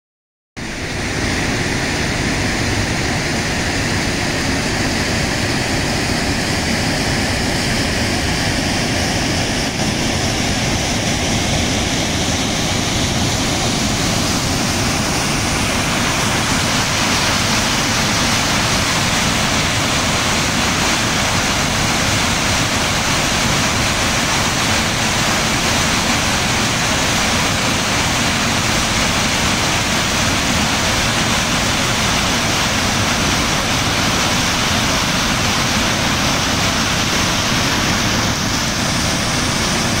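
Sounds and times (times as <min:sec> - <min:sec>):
waterfall rushing: 0:00.6 - 0:40.0.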